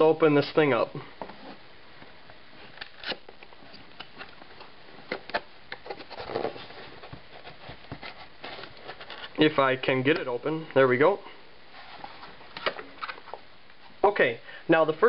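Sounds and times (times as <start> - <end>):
paper rustle: 5.8 - 9.4.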